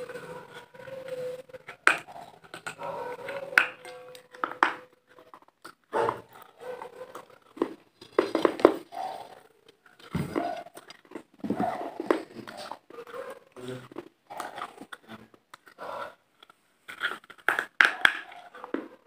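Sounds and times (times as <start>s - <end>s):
chewing and lip smacks: 8.8s - 18.8s.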